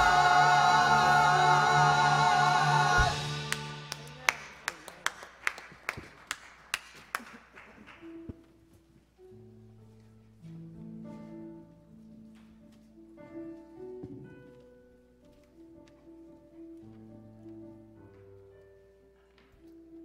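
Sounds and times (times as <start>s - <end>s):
sharp percussive hits: 0.0s - 4.8s.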